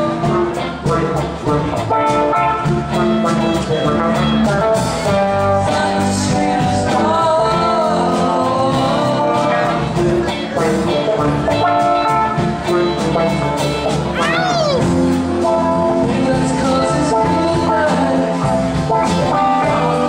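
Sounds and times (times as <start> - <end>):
live rock band playing: 0.0 - 20.0
bending electric guitar lead line: 10.1 - 18.2.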